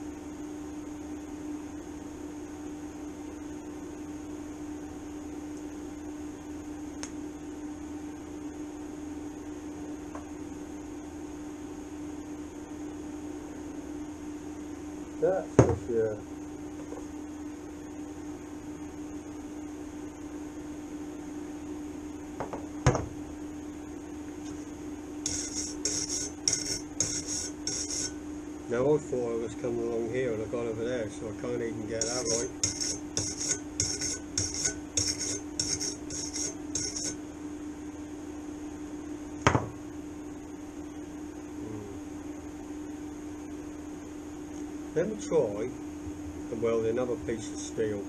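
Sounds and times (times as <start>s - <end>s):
steady hum: 0.0s - 48.0s
wire brush scrubbing steel plate: 25.2s - 28.2s, 31.9s - 37.2s
sharp knock on workbench: 39.4s - 39.8s.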